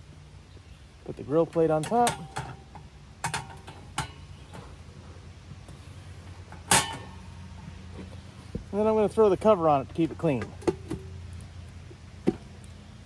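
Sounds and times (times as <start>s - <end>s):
metal grill plate clinking: 1.4s - 4.8s, 6.4s - 7.7s.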